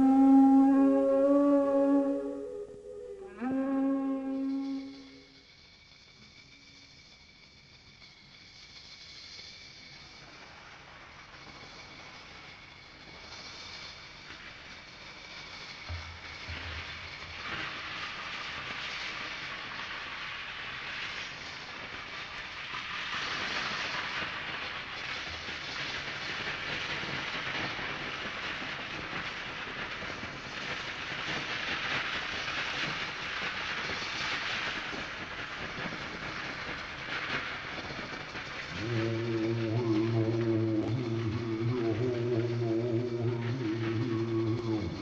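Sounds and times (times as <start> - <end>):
shakers or cymbals rattling softly: 3.3 - 39.3.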